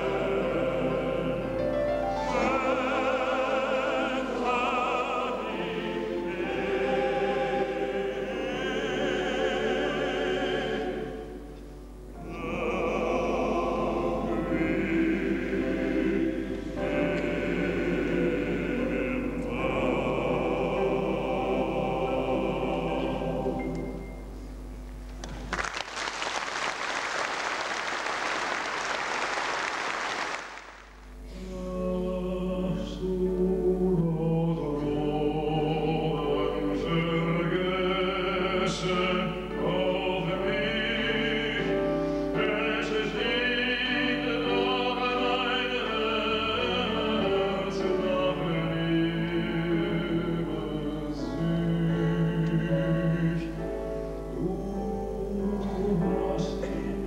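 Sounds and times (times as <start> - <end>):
men's choir singing: 0.0 - 11.6, 12.2 - 24.2, 31.4 - 53.8, 54.4 - 57.0
audience applause: 25.2 - 31.0.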